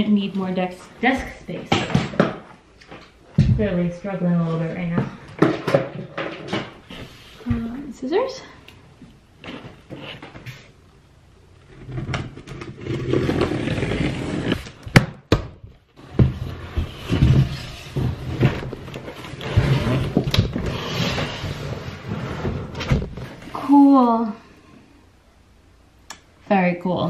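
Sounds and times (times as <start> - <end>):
cardboard rustling and scraping: 9.4 - 10.7, 11.6 - 14.8, 16.0 - 23.6.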